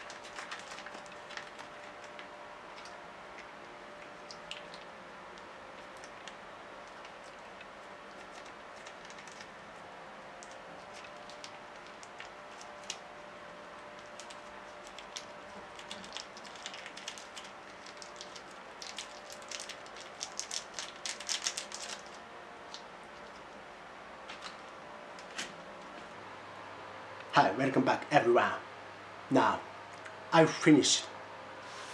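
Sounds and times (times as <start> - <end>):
foil sachets crinkling: 0.0 - 9.8, 10.4 - 23.5
faint hum: 0.0 - 31.9.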